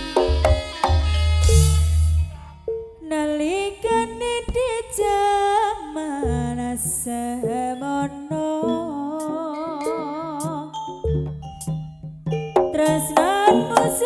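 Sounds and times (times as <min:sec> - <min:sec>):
drum strokes: 0:00.0 - 0:03.0, 0:10.4 - 0:14.0
gamelan accompaniment: 0:00.0 - 0:03.2, 0:06.2 - 0:14.0
sliding vocal melody with vibrato: 0:00.0 - 0:11.1, 0:12.8 - 0:14.0.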